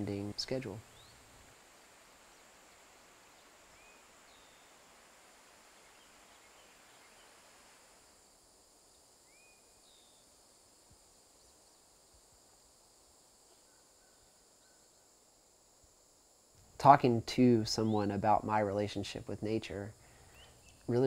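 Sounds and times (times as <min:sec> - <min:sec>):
insects droning: 0:00.0 - 0:21.0
bird chirps: 0:00.9 - 0:01.3, 0:20.3 - 0:20.9.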